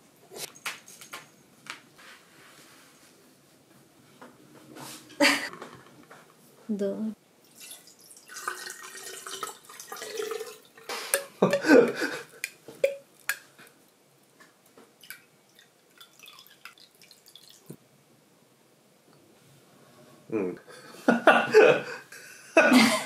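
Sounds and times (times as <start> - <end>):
thin pour into small glass: 7.4 - 11.3, 15.0 - 17.8.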